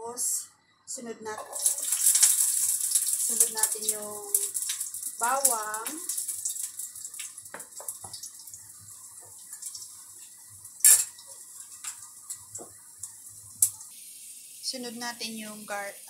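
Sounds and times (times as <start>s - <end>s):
kitchenware clatter: 1.4s - 6.7s, 10.8s - 12.6s
small pops and crackles: 1.4s - 14.0s
garlic sizzling in hot oil: 1.4s - 16.0s.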